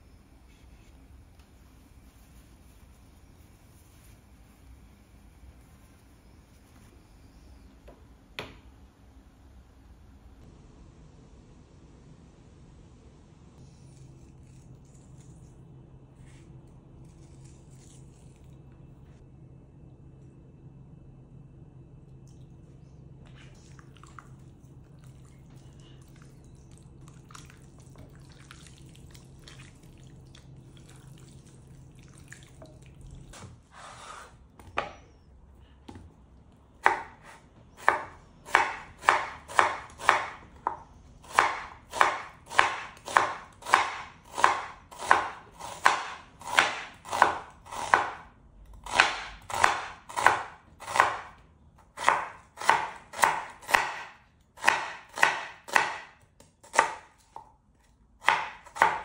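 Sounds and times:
faint low hum: 0:00.0 - 0:54.7
knife chopping on cutting board: 0:36.8 - 0:48.2, 0:48.8 - 0:51.3, 0:52.0 - 0:57.5, 0:58.2 - 0:59.0.

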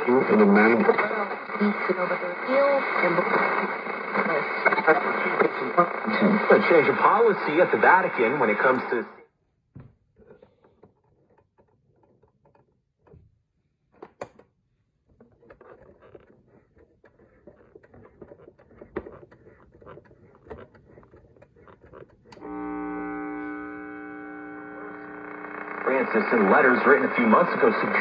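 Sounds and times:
radio speaker hum: 0:00.0 - 0:09.3, 0:15.2 - 0:28.0.

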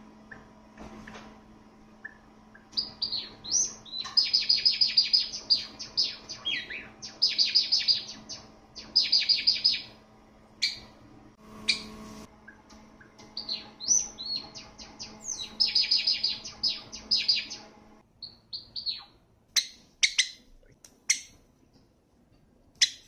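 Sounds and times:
sparrow singing chirps and trills: 0:02.0 - 0:09.9, 0:10.6 - 0:10.9, 0:13.3 - 0:20.4.

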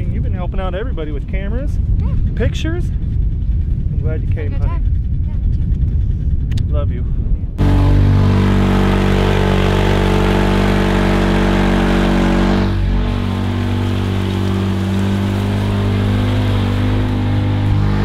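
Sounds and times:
vehicle engine drone: 0:00.0 - 0:18.0
tracks churning mud: 0:07.6 - 0:18.0.

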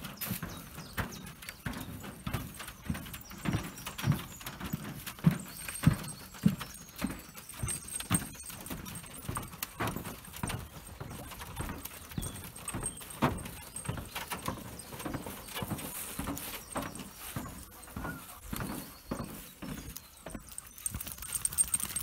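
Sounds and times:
footsteps on wooden boards: 0:00.0 - 0:22.0.

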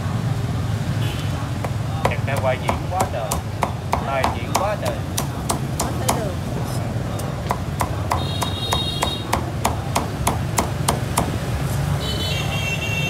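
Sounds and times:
cleaver chopping meat on wooden block: 0:01.6 - 0:06.4, 0:07.1 - 0:11.5.

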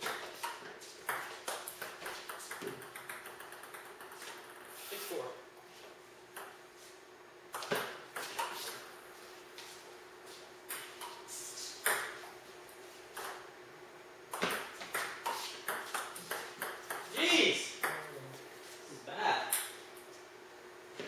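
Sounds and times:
table tennis ball hits: 0:00.0 - 0:04.6, 0:14.3 - 0:17.2.

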